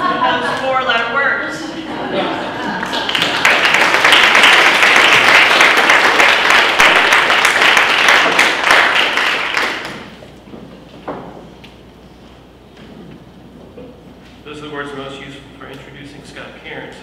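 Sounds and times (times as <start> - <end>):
audience applauding: 2.5 - 10.2.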